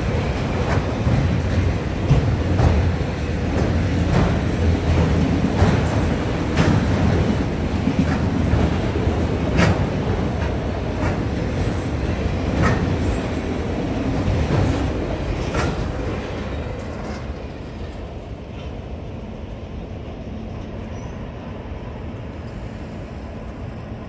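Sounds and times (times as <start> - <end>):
train wheels clacking: 0.0 - 18.8
freight train rumbling past: 0.0 - 24.0.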